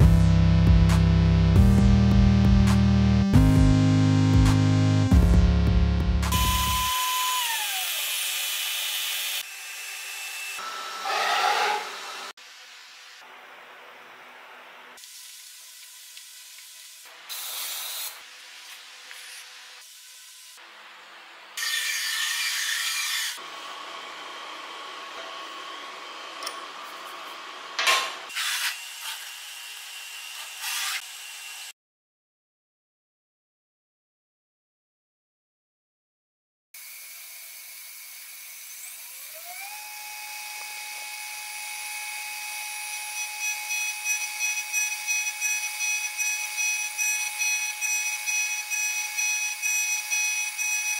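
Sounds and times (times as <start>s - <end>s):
high-pitched spindle whine: 6.3s - 7.8s, 42.9s - 50.9s
metal scrapes: 11.0s - 12.1s.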